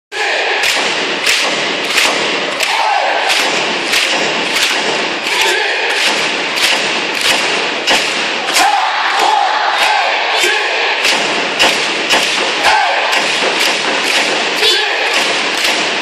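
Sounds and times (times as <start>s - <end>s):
crowd cheering rhythmically: 0.1s - 16.0s
crowd voices and shouts: 0.1s - 16.0s.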